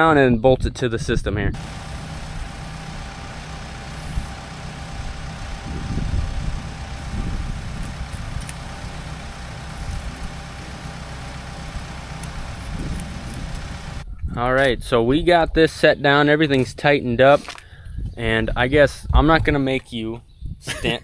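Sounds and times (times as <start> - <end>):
diesel engine idling: 1.6 - 14.0.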